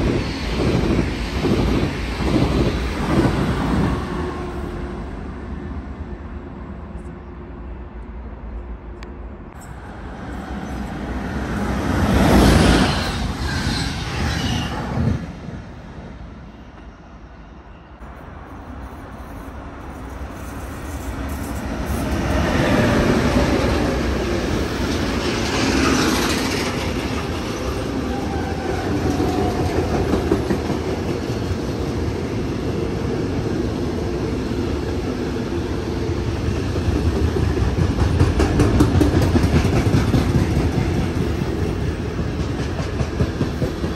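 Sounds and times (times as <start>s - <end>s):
freight train wheels rumbling: 0.0s - 43.9s
passing train rush: 0.0s - 43.9s
clickety-clack over rail joints: 20.0s - 33.2s, 36.2s - 43.9s.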